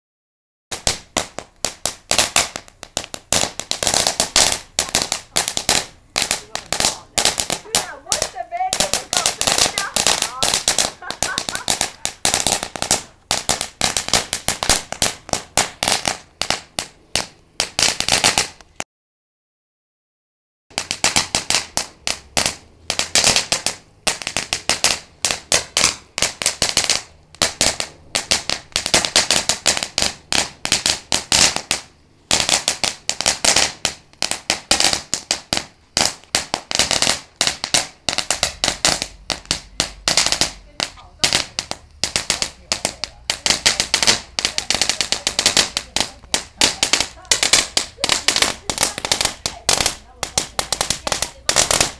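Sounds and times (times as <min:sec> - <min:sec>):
firework crackling pops: 0:00.7 - 0:18.9, 0:20.7 - 0:51.9.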